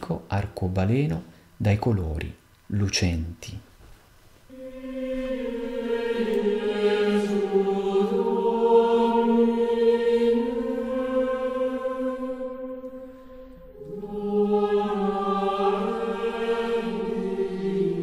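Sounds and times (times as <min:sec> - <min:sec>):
slow choral chanting: 0:04.4 - 0:18.0.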